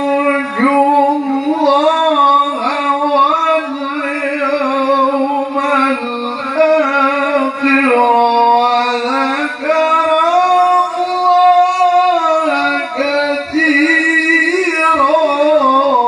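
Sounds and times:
man reciting melodically into microphone: 0.0s - 16.0s.

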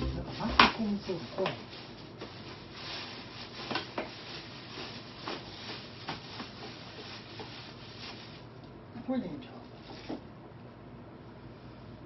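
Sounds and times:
plastic bag rustling: 0.0s - 8.6s, 9.6s - 10.2s.

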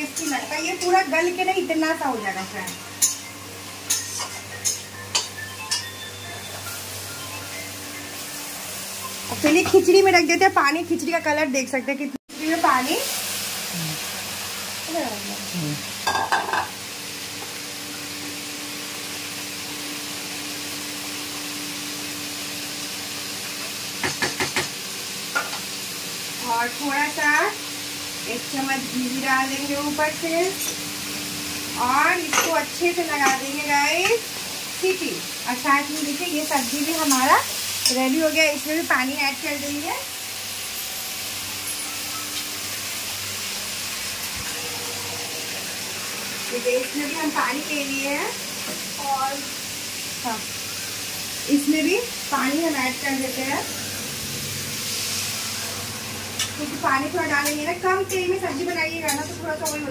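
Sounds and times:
kitchen utensils clattering: 3.9s - 6.6s
gas burner hiss: 12.4s - 59.9s.

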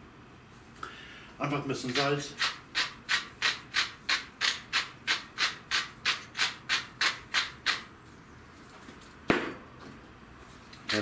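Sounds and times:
salt mill grinding: 1.9s - 7.9s.

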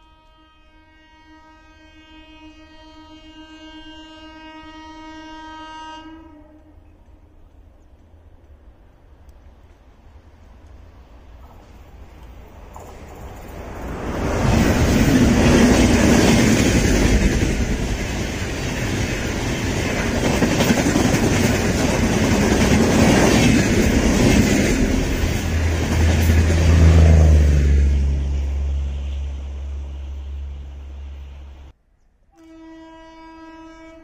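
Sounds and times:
train wheels rushing on rail: 6.6s - 31.7s.

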